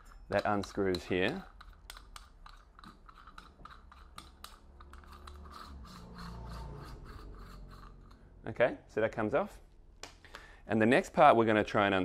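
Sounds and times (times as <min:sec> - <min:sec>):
scratching clicks of turning threads: 0:00.3 - 0:06.3.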